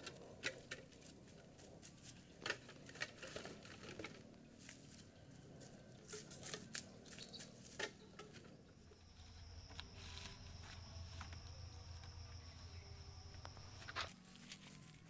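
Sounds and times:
low hum: 8.7 - 15.0
footsteps on leafy ground: 9.0 - 15.0.

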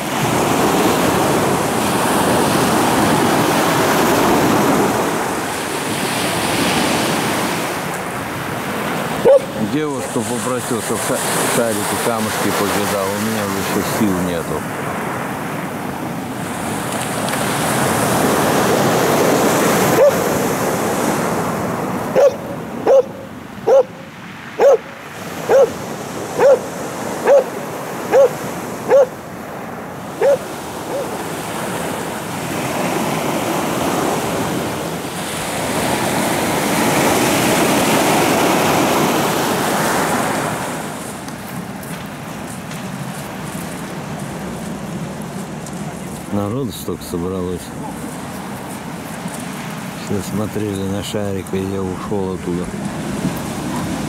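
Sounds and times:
surf washing onto pebble beach: 0.0 - 54.0
dog barking: 9.2 - 9.6, 19.9 - 20.4, 22.1 - 29.2, 30.2 - 31.2, 53.7 - 54.0.

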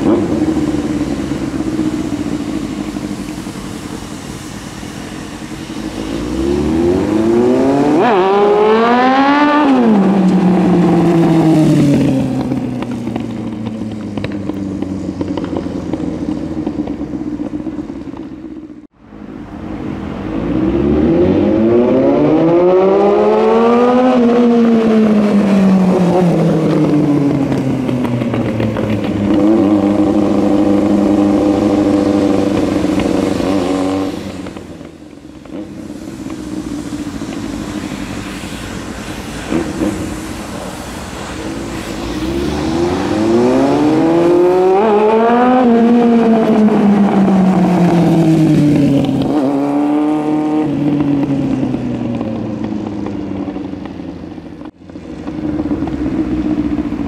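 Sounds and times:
motorcycle engine revving: 0.0 - 18.9, 20.4 - 57.0.

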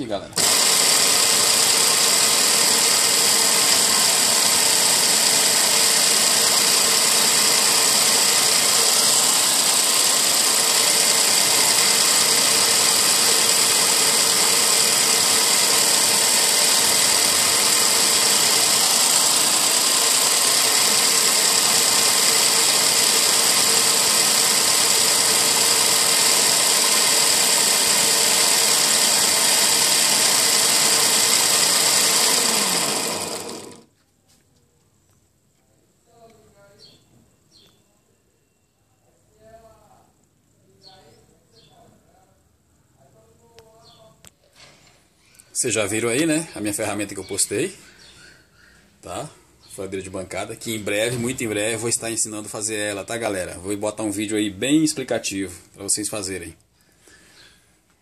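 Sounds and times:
drill press sanding: 0.4 - 33.9.

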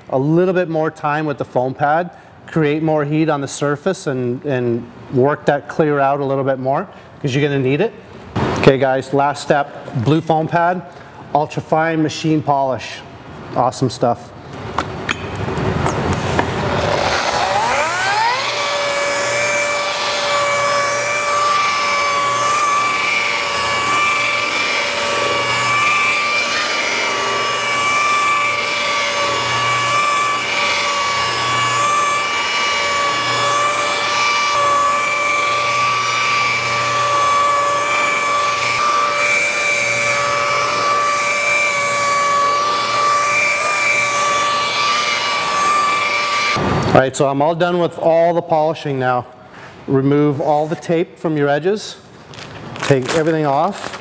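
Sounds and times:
rotary polisher whining: 16.1 - 46.9.

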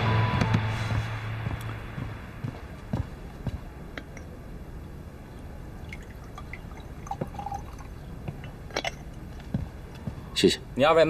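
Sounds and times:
dripping: 5.7 - 9.3
tea pouring into cups: 5.8 - 9.2.

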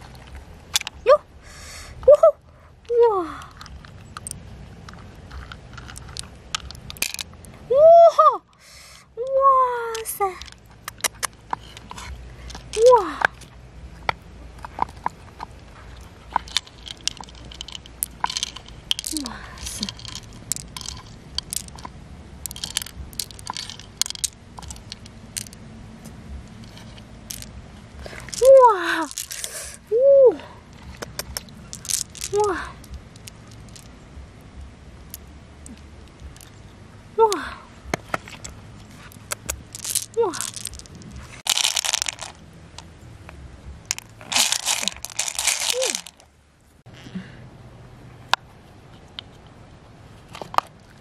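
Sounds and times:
pearls clicking together: 3.3 - 7.6, 9.8 - 29.8, 30.7 - 36.7, 37.3 - 42.9, 43.9 - 46.3.

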